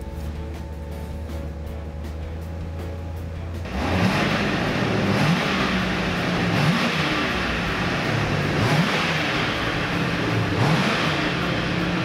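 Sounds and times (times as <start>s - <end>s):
car engine revving: 3.6s - 12.0s.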